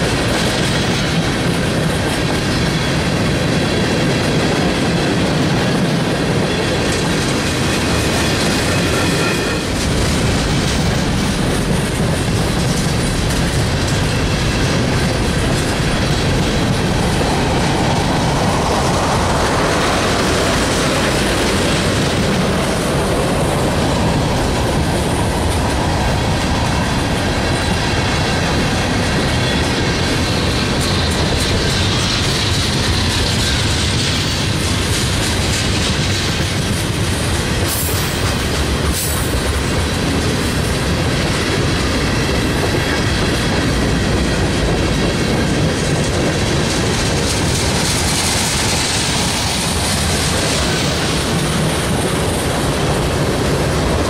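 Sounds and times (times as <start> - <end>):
train wheel squeal: 0.0 - 54.0
train wheels clattering on rails: 0.0 - 54.0.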